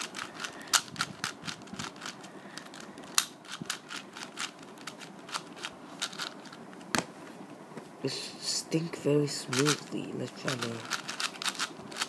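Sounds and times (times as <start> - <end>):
puzzle cube clicking: 0.0 - 6.6, 9.5 - 12.0.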